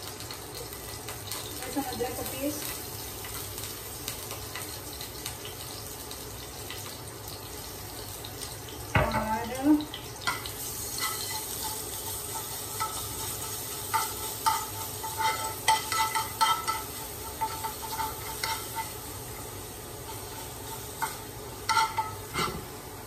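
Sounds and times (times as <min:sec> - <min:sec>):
paste sizzling in oil: 0:00.0 - 0:23.0
spoon scraping a pan: 0:10.2 - 0:22.8.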